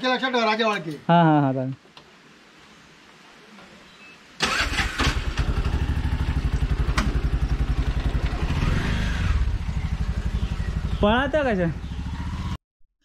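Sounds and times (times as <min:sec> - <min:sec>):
auto-rickshaw engine chugging: 0:04.4 - 0:12.6.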